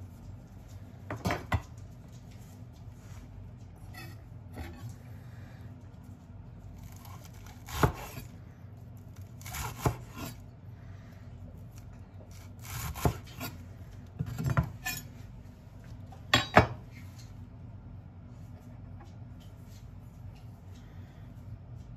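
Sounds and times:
knife slicing through lettuce: 0:06.8 - 0:08.3, 0:09.2 - 0:10.4, 0:11.7 - 0:13.6.

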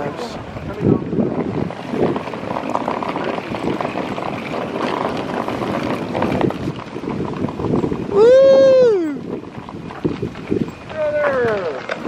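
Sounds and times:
suitcase wheels rumbling on asphalt: 0:00.0 - 0:12.0
person shouting: 0:08.1 - 0:09.2.

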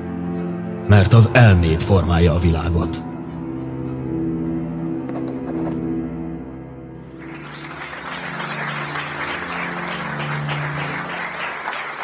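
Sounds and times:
held low music notes: 0:00.0 - 0:11.6
audience applauding: 0:07.1 - 0:12.0.

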